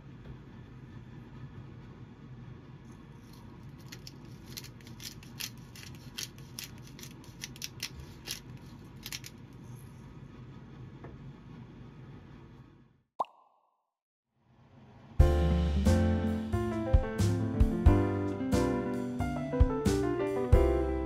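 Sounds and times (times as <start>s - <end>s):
pepper mill grinding: 3.3s - 9.6s.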